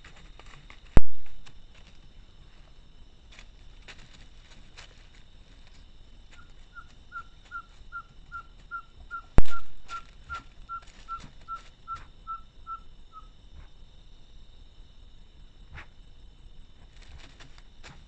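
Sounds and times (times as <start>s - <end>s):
animal whistled calls: 6.4s - 13.3s.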